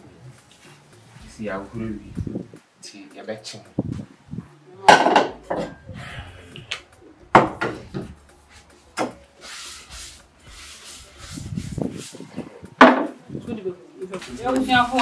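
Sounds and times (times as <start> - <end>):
wooden utensil scraping: 7.3 - 13.2.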